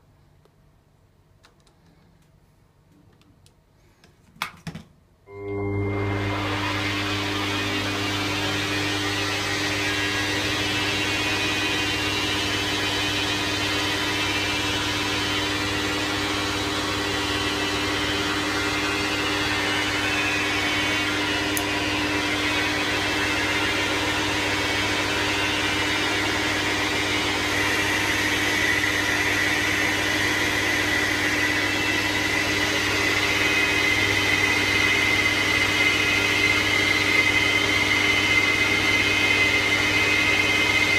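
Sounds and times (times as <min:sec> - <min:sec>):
high whine of cutting tool: 0:05.3 - 0:40.9.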